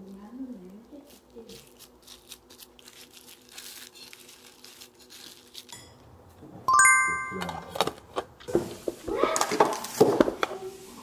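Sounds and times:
bright bell-like chime: 0:06.7 - 0:07.7.

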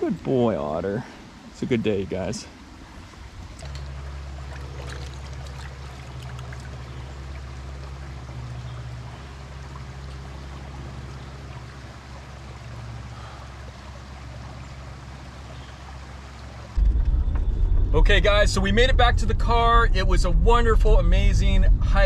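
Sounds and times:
stream running over rocks: 0:00.0 - 0:16.8.

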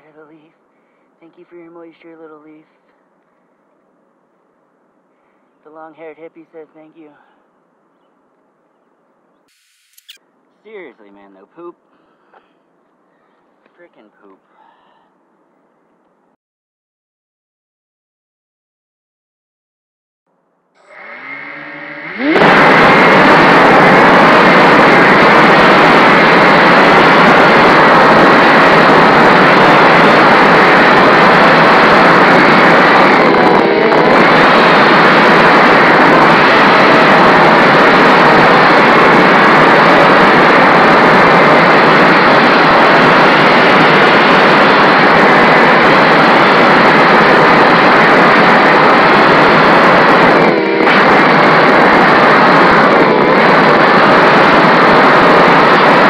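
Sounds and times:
quadcopter motors and propellers: 0:09.5 - 0:10.2, 0:20.8 - 0:56.0.

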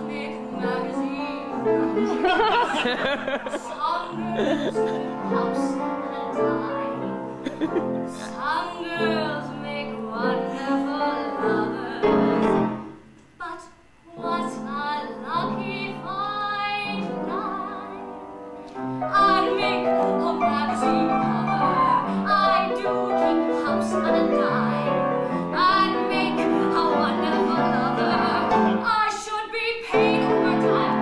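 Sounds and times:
woman singing with vibrato: 0:00.0 - 0:02.8, 0:03.5 - 0:07.3, 0:08.1 - 0:18.2, 0:19.1 - 0:31.0
piano accompaniment: 0:00.0 - 0:03.4, 0:08.8 - 0:13.0, 0:14.7 - 0:29.0, 0:29.9 - 0:31.0.

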